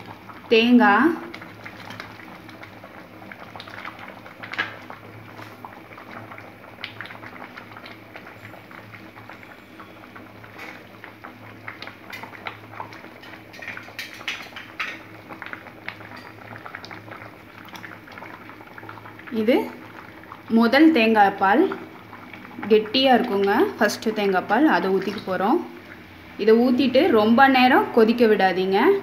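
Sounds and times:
bubbles popping in boiling pan: 0.0s - 29.0s.

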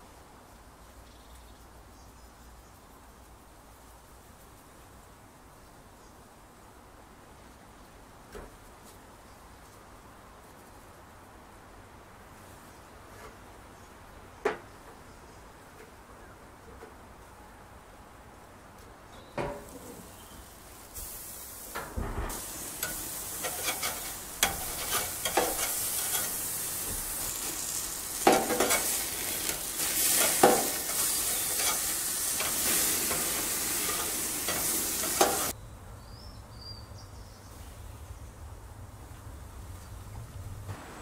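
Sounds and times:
steak sizzling on a grill: 19.6s - 35.5s.

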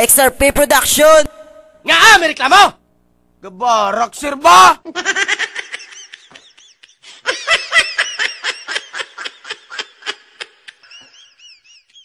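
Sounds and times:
person laughing high-pitched: 4.9s - 12.0s.

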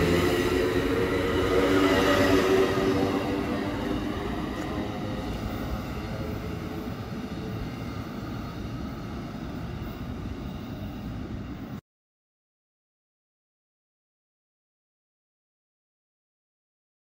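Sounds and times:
train rumbling away: 0.0s - 11.8s.

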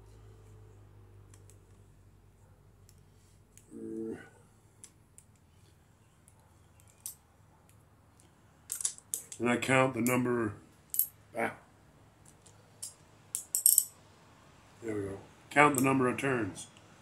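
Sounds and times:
person humming: 3.7s - 4.3s
hand tools clicking and tapping: 6.2s - 9.4s.

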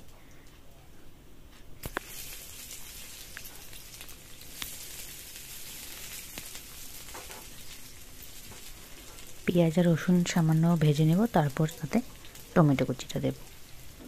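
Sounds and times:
garlic and onion sizzling in oil: 1.8s - 14.0s.

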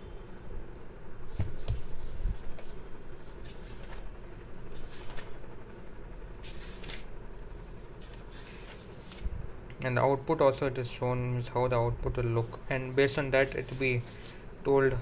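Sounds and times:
book pages turning: 1.3s - 9.3s, 12.4s - 14.4s.

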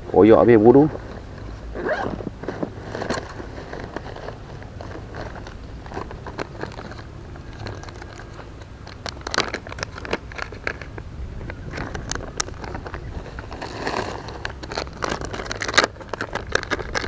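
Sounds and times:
plastic packet crinkling: 2.2s - 17.0s.

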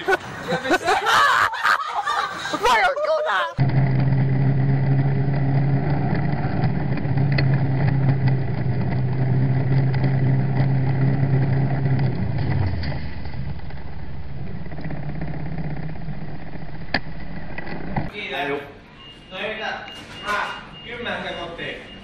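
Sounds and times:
low motor hum: 3.6s - 18.1s
road and wind noise: 3.6s - 18.1s.

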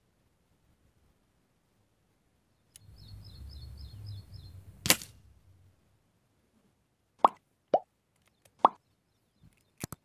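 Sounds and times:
air rifle shot crack: 4.8s - 5.2s.

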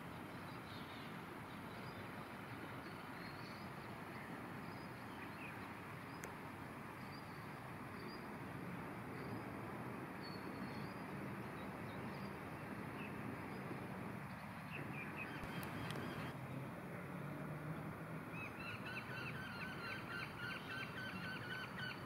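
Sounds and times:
steady background hiss: 0.0s - 16.7s, 18.3s - 22.0s.

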